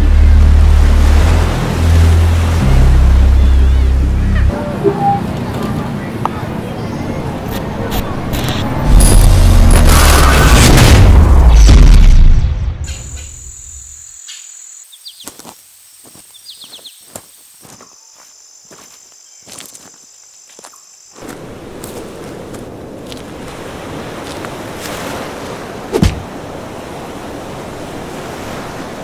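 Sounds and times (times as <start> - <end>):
surf: 0.0 - 12.6
wind: 0.0 - 29.0
insects buzzing: 12.9 - 24.6
footsteps on rocky ground: 15.2 - 25.2
thump: 26.0 - 26.3.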